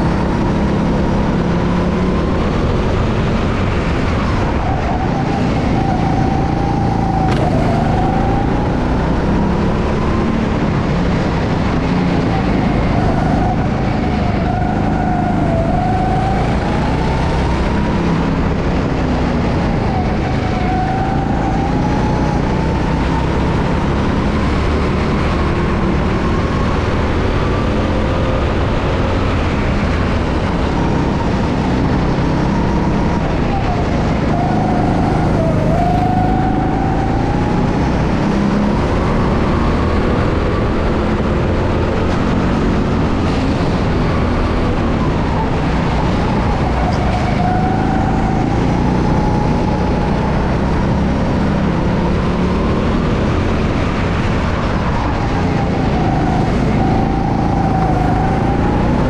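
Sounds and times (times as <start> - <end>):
go-kart engine running hard: 0.0 - 59.0.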